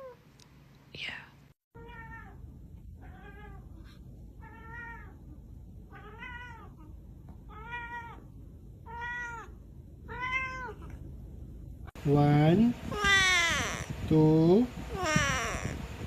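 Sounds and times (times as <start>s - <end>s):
cat meowing: 1.8s - 2.4s, 4.4s - 5.2s, 5.9s - 11.0s, 12.9s - 13.9s, 15.0s - 15.8s.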